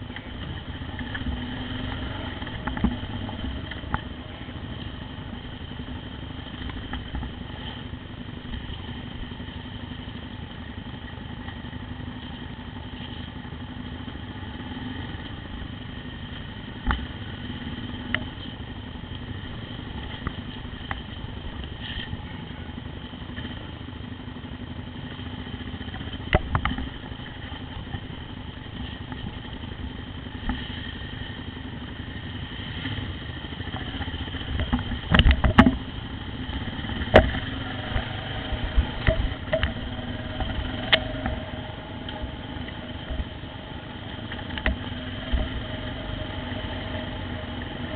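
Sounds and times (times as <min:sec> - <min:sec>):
motorcycle engine running: 0:00.0 - 0:47.9
sharp knocks and clatters: 0:33.7 - 0:42.3.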